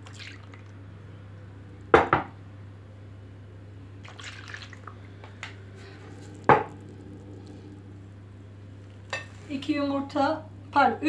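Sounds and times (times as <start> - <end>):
milk splashing into bowl: 0.0 - 0.8, 4.0 - 7.7.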